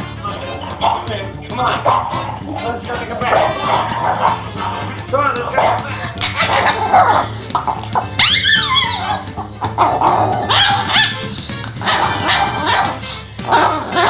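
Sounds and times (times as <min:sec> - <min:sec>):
background music: 0:00.0 - 0:14.0
small dog growling and barking: 0:06.2 - 0:11.2, 0:11.8 - 0:14.0.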